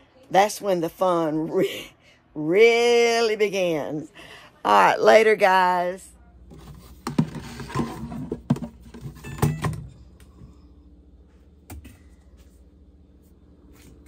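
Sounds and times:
plastic jug handling clatter: 6.5 - 9.9.

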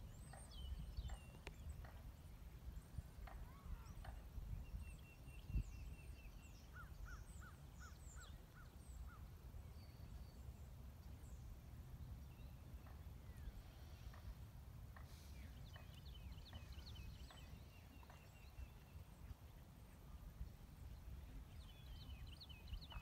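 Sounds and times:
songbirds chirping: 0.0 - 23.0.

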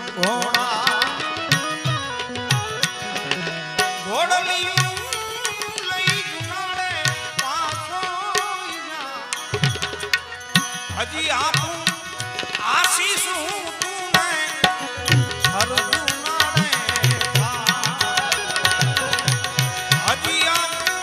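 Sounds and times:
man singing: 0.0 - 10.0, 10.9 - 21.0
harmonium: 0.0 - 21.0
tabla strokes: 9.3 - 21.0.

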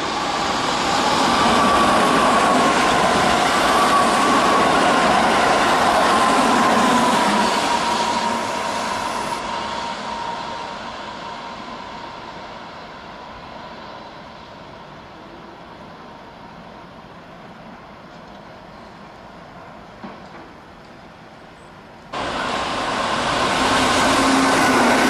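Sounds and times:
electric train passing at speed: 0.0 - 25.0
wheels rushing on rail: 0.0 - 25.0
train motor whine: 22.2 - 25.0.

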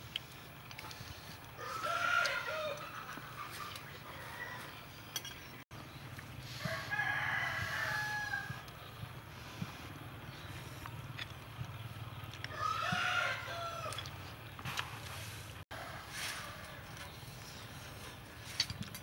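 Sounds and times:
rooster crowing: 1.6 - 3.0, 4.0 - 4.8, 6.6 - 8.6, 12.5 - 14.1.

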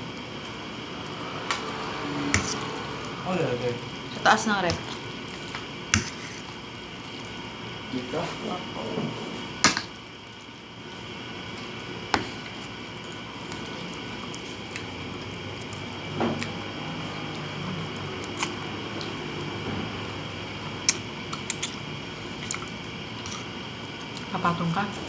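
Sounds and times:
slurping and chewing noodles: 12.6 - 19.5, 20.8 - 24.3.

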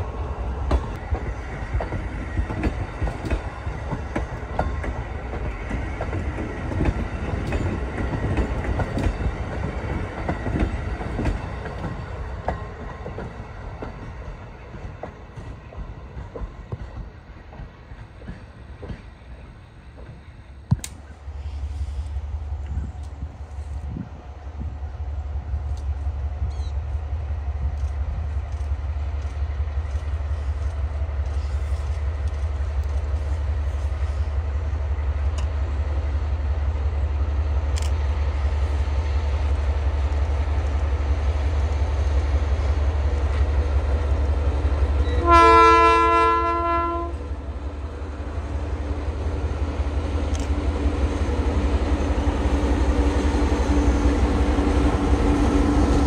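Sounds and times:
diesel locomotive engine rumble: 0.0 - 56.0
locomotive horn blast: 45.0 - 47.3.

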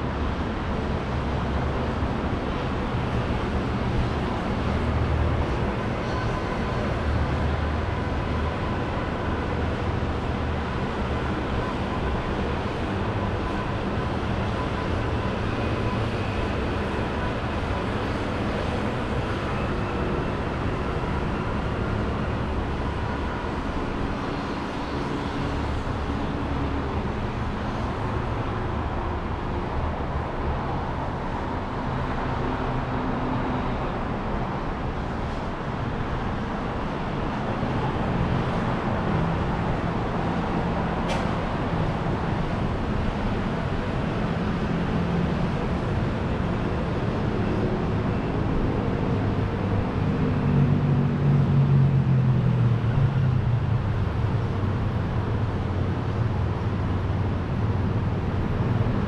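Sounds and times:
passing vehicles: 0.0 - 59.0.

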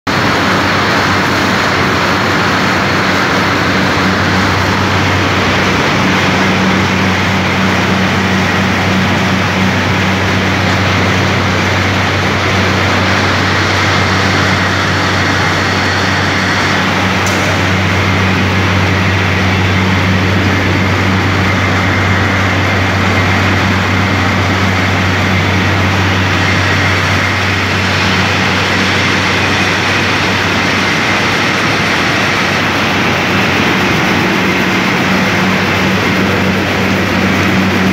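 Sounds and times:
machinery mechanical hum: 0.1 - 37.9
rushing noise: 0.1 - 37.9.

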